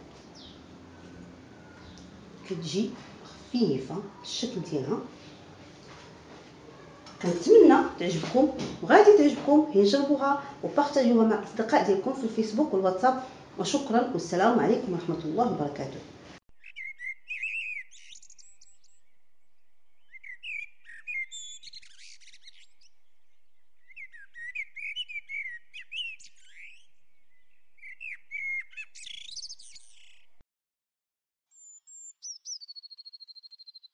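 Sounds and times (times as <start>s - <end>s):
small birds chirping: 0.2s - 5.8s, 16.5s - 30.4s, 31.5s - 33.9s.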